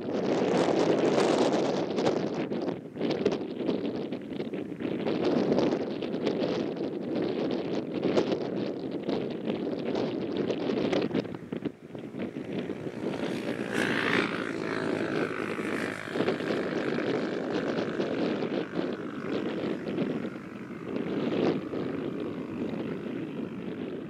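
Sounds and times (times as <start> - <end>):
wind rumbling on microphone: 0.0 - 24.0
high engine whine: 9.4 - 24.0
jet engines running: 10.6 - 24.0.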